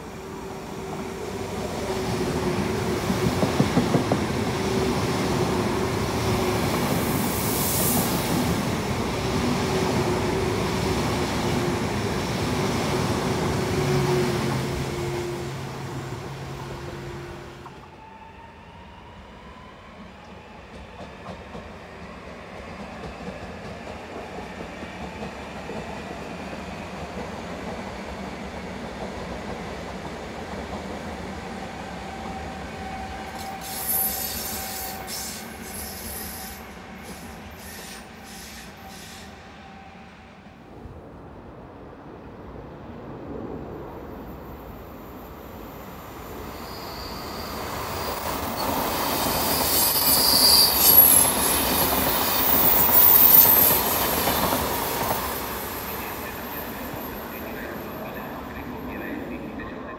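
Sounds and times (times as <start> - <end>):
distant train rumble: 0.0 - 59.9
train wheel and rail noise: 0.0 - 59.9
high wheel squeal: 32.9 - 39.4, 46.2 - 54.2.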